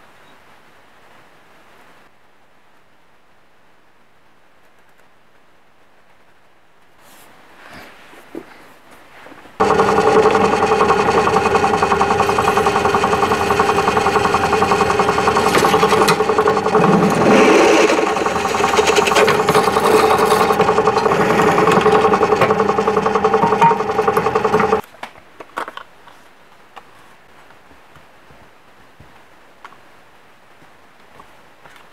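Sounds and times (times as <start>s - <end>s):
drill press drilling metal: 9.6s - 24.8s.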